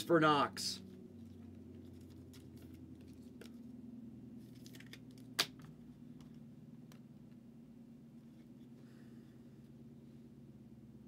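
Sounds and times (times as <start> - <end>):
steady low hum: 0.0 - 11.0
cards clicking and rustling: 1.2 - 3.6, 4.5 - 5.7.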